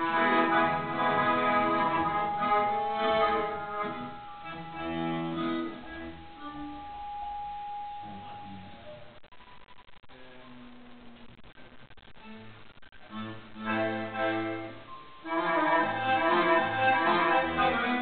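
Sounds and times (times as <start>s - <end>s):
accordion playing chords: 0.0s - 6.7s, 13.1s - 18.0s
other instruments: 0.0s - 9.6s, 12.2s - 18.0s.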